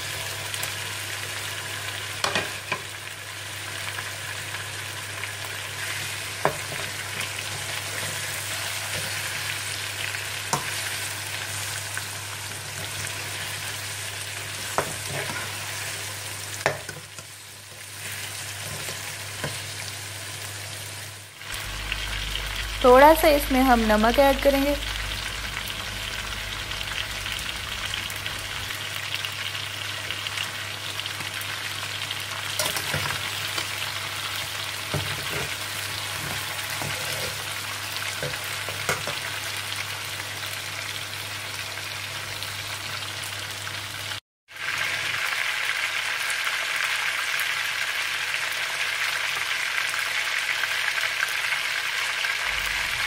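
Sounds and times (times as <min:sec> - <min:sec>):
chicken sizzling in hot oil: 0:00.0 - 0:53.0
stirring scrapes against pan: 0:34.9 - 0:37.6.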